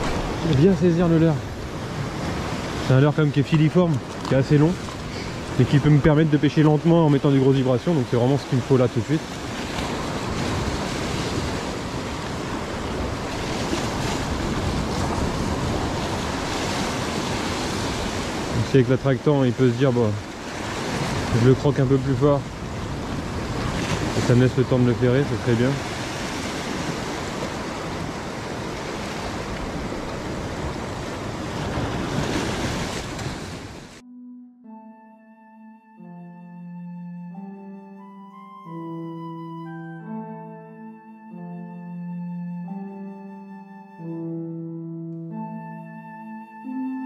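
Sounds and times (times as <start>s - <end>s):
surf breaking over rocks: 0.0s - 34.0s
wind buffeting microphone: 9.2s - 18.6s, 20.2s - 34.0s.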